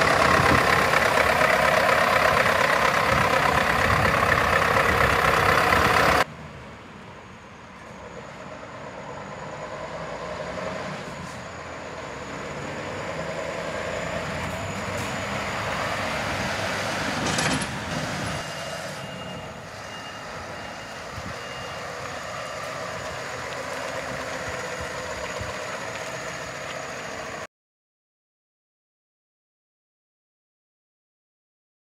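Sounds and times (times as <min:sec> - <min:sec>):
reversing beeper: 0:00.0 - 0:06.2, 0:07.2 - 0:16.9, 0:17.9 - 0:27.5
truck diesel engine running: 0:00.0 - 0:27.5.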